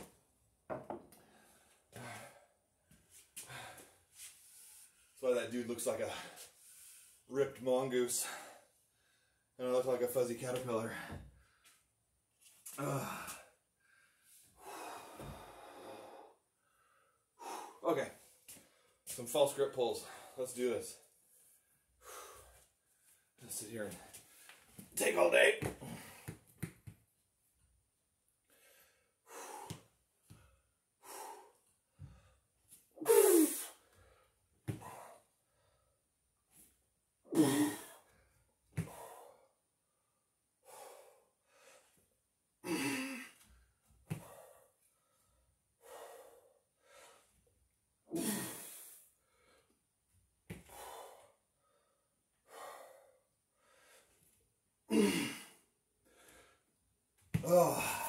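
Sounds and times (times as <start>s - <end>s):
man breathing hard: 1.2s - 2.6s, 3.4s - 5.0s, 12.8s - 17.8s, 22.0s - 23.2s, 28.5s - 32.5s, 37.4s - 42.0s, 42.6s - 47.4s, 50.6s - 54.2s, 54.9s - 56.7s, 57.4s - 58.0s.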